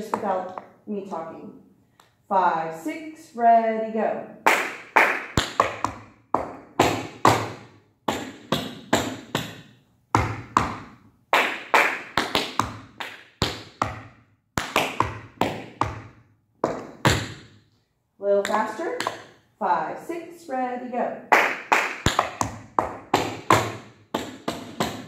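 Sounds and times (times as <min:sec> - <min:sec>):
tap shoes on hard floor: 0:00.0 - 0:00.8, 0:05.4 - 0:11.0, 0:12.2 - 0:17.5, 0:18.4 - 0:19.3, 0:22.1 - 0:25.0.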